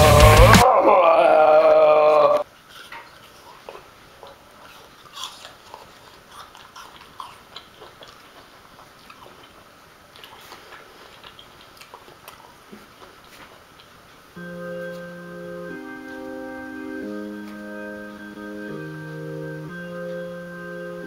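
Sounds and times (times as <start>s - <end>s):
person chewing food: 2.4s - 15.2s.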